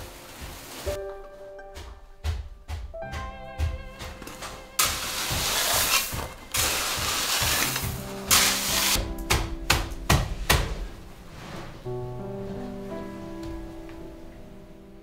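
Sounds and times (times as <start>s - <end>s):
soft background music: 0.0s - 15.0s
shovel scraping gravel: 4.8s - 9.0s.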